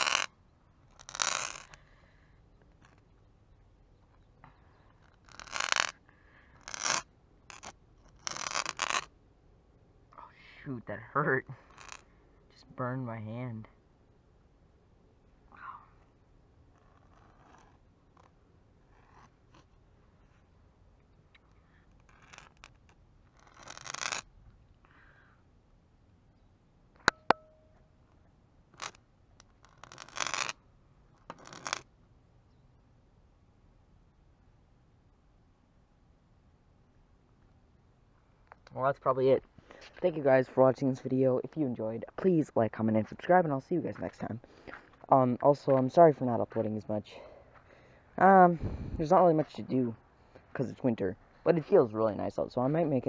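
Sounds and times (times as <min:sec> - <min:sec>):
firework scraping on concrete: 0:00.0 - 0:00.3, 0:00.9 - 0:01.8, 0:05.0 - 0:06.0, 0:06.6 - 0:09.1, 0:11.6 - 0:12.1, 0:16.7 - 0:19.7, 0:22.0 - 0:24.3, 0:28.8 - 0:30.6, 0:31.2 - 0:31.9.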